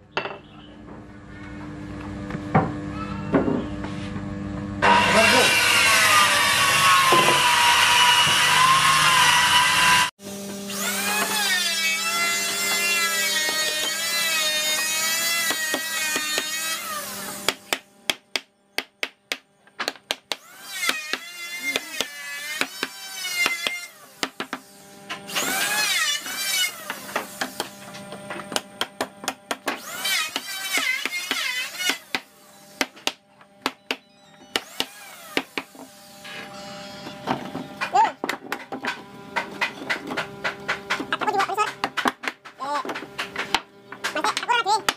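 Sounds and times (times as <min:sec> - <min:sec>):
power tool whining: 0:04.8 - 0:17.7, 0:20.4 - 0:28.2, 0:33.7 - 0:37.9.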